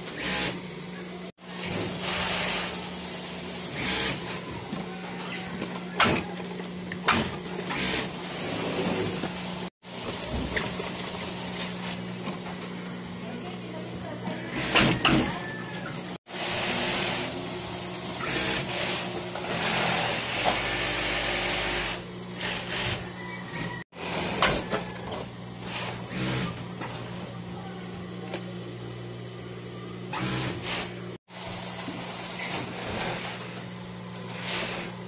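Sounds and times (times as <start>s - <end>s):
sewing machine running: 0.0s - 0.6s, 1.4s - 4.8s, 6.0s - 12.0s, 16.2s - 26.6s, 30.1s - 35.0s.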